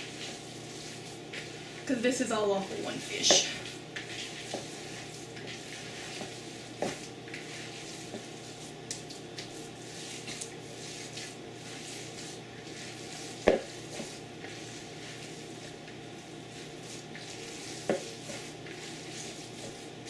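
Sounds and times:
hands squishing wet mixture: 0:03.2 - 0:16.0, 0:16.6 - 0:20.0.

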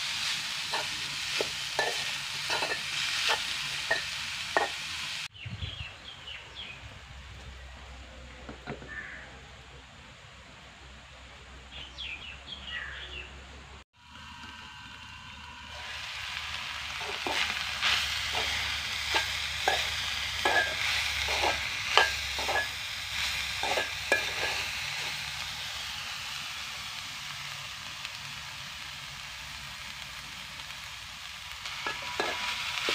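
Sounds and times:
food sizzling in a pot: 0:00.0 - 0:05.3, 0:14.0 - 0:32.9
metal spoon scraping a pot: 0:00.7 - 0:04.8, 0:17.0 - 0:25.2, 0:31.8 - 0:32.9.

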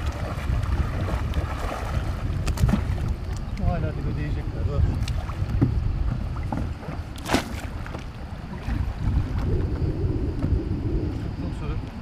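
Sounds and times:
short water splash: 0:00.0 - 0:03.2, 0:07.2 - 0:07.8
water sloshing around wading person: 0:00.0 - 0:03.9, 0:04.8 - 0:12.0
wind buffeting microphone: 0:00.0 - 0:12.0.

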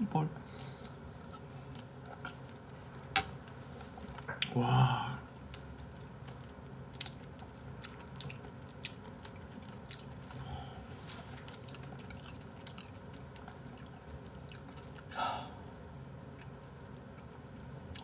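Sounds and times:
person chewing: 0:05.8 - 0:18.0.

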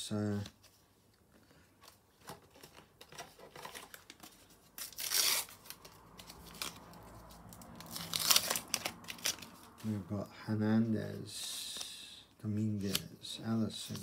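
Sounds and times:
wrapper crinkling and rustling: 0:02.2 - 0:10.0
wrapper ripping: 0:04.8 - 0:09.8.

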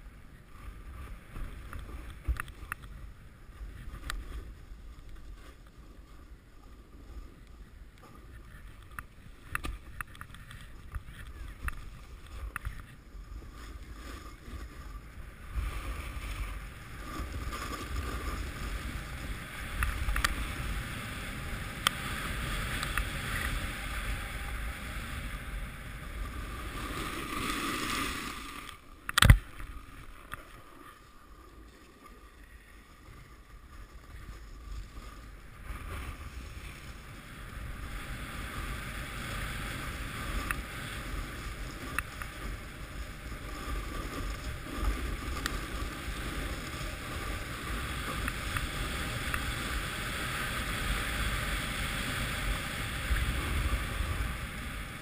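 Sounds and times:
snowboard scraping on snow: 0:11.4 - 0:55.0.

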